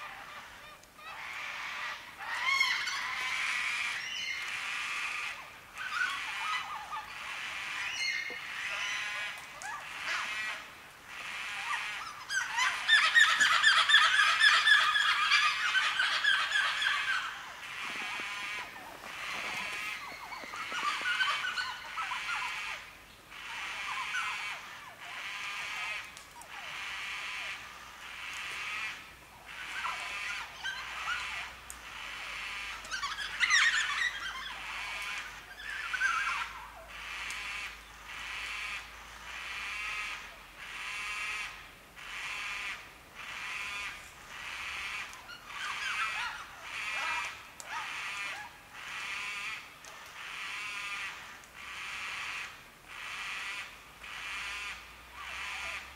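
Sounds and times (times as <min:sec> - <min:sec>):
cockatoos calling: 0:00.0 - 0:55.9.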